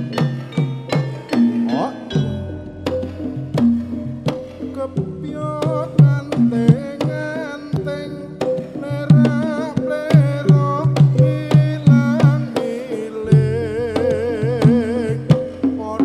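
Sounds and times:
wavering melody line: 0:00.0 - 0:13.1
gamelan ensemble playing: 0:00.0 - 0:16.0
hand drum strokes: 0:00.0 - 0:16.0.

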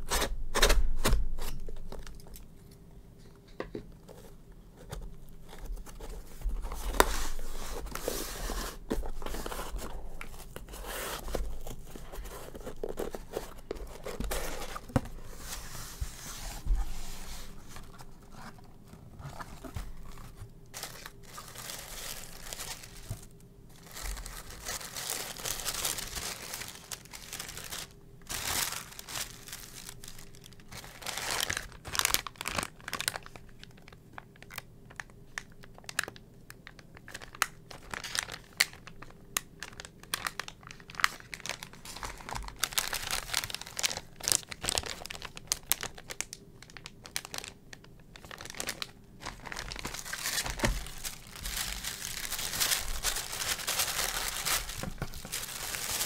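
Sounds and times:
tissue paper and plastic crinkling: 0:04.1 - 0:56.0.

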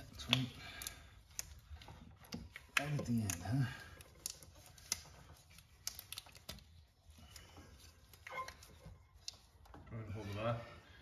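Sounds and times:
light clicks and taps: 0:00.1 - 0:06.7.

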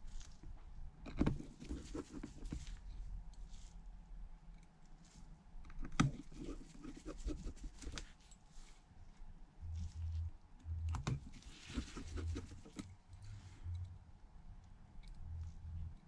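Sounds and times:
screwdriver clicks and taps: 0:01.0 - 0:01.4.

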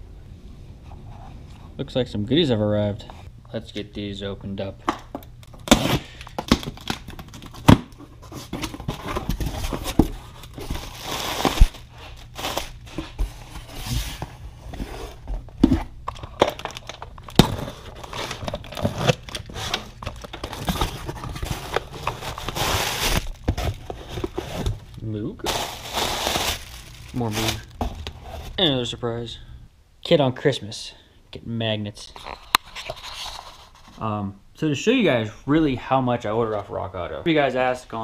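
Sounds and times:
plastic wrapping crinkling: 0:05.5 - 0:13.2, 0:16.1 - 0:28.6
cardboard boxes tearing: 0:05.6 - 0:14.2, 0:16.6 - 0:24.8, 0:25.5 - 0:28.5.

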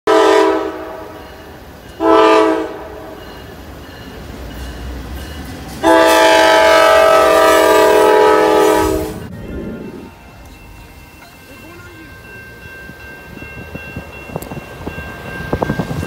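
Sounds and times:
locomotive air horn: 0:00.1 - 0:01.2, 0:02.0 - 0:03.2, 0:05.8 - 0:09.3
low rumble of passing train: 0:00.1 - 0:16.0.

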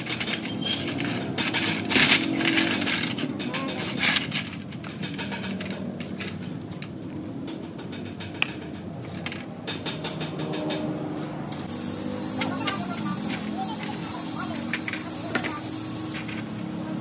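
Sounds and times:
metal clicks and clinks: 0:00.0 - 0:10.9.

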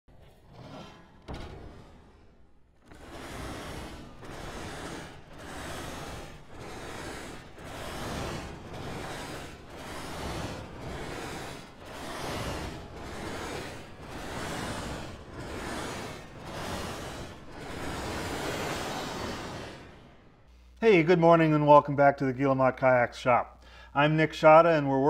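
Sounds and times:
hand sanding wood: 0:02.8 - 0:20.3.

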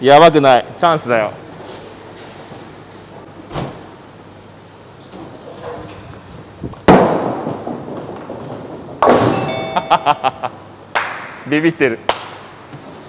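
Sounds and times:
bowling ball rolling: 0:05.2 - 0:10.7
bowling ball thud: 0:06.8 - 0:09.8
bowling pins crashing: 0:06.8 - 0:09.9.

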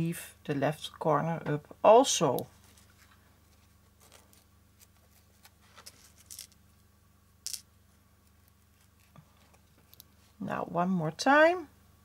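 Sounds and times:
low steady hum: 0:00.0 - 0:12.0
soft rustles of ribbon: 0:02.5 - 0:06.6.

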